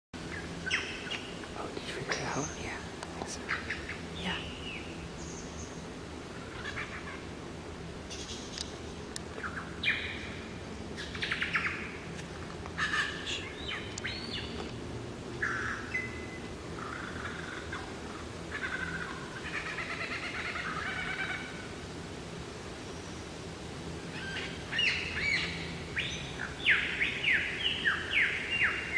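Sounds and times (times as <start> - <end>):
lyrebird singing: 0.2 - 7.3, 8.1 - 12.0, 12.7 - 14.8, 24.1 - 28.9.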